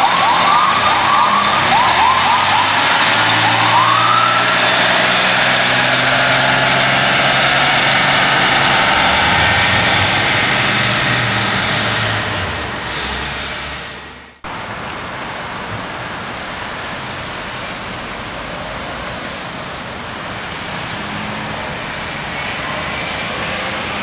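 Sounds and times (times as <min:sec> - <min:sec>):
road traffic roar: 0:00.0 - 0:24.0.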